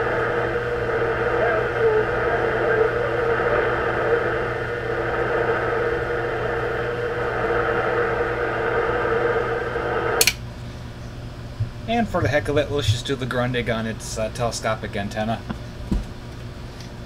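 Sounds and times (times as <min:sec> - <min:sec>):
radio static and hiss: 0:00.0 - 0:10.3
low hum: 0:00.0 - 0:12.7.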